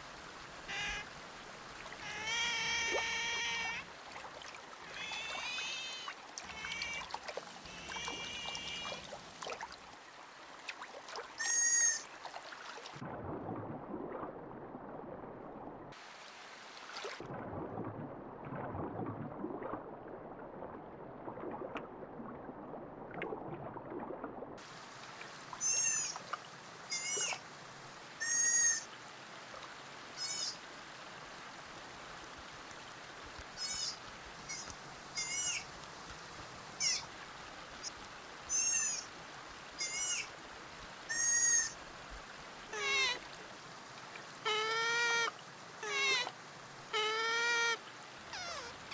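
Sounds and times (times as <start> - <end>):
otter squeaks and chirps: 25.6 - 26.2, 33.6 - 35.6, 36.8 - 37.0, 38.5 - 39.0, 39.8 - 40.3, 48.3 - 48.8.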